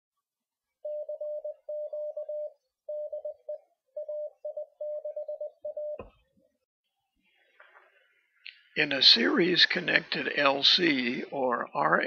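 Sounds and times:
morse code tone: 0:00.8 - 0:06.1.

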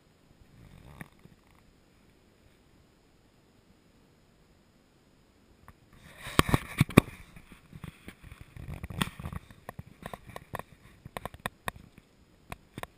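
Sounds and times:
sharp clicks and knocks: 0:07.8 - 0:12.9.

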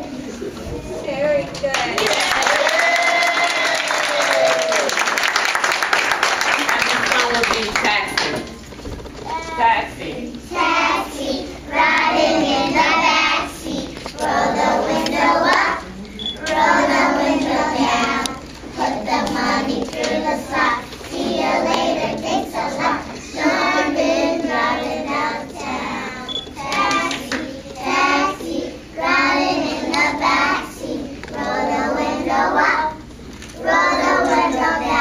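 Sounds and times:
young children singing: 0:10.4 - 0:35.0.

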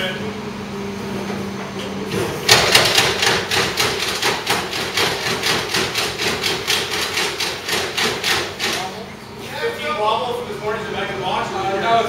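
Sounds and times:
rapid sharp knocks: 0:02.5 - 0:08.9.

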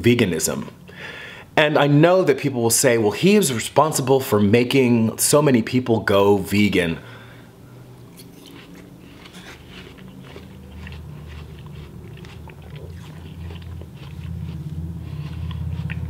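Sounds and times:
man chewing watermelon: 0:08.0 - 0:16.0.

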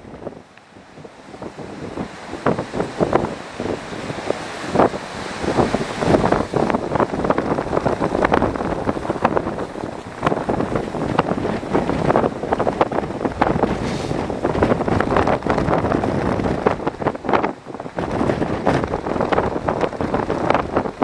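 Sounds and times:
surf breaking on rocks: 0:00.0 - 0:21.0
wind buffeting microphone: 0:00.0 - 0:21.0.

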